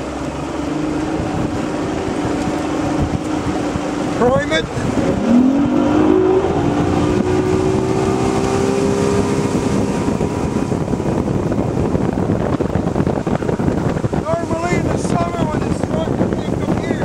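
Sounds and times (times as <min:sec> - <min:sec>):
outboard motor revving: 0:00.0 - 0:17.0
rushing water noise: 0:00.0 - 0:17.0.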